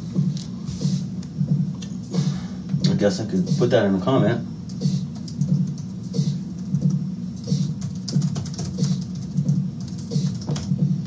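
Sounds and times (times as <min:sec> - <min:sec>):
music with pulsing beat: 0:00.0 - 0:11.0
keyboard typing: 0:04.6 - 0:10.8.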